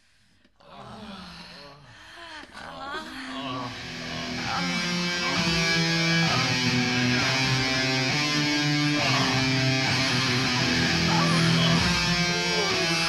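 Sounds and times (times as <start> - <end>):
metal electric guitars playing: 3.7 - 13.0.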